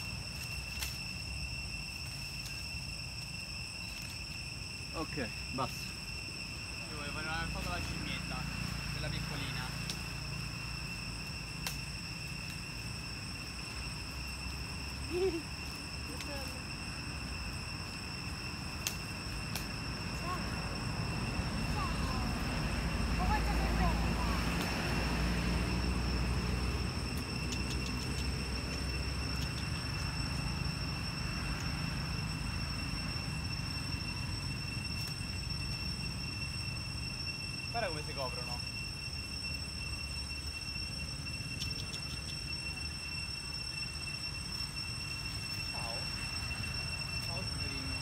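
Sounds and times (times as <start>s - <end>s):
high-pitched insect drone: 0.0s - 48.0s
high-pitched whine: 0.0s - 48.0s
faint clicks: 27.5s - 28.3s.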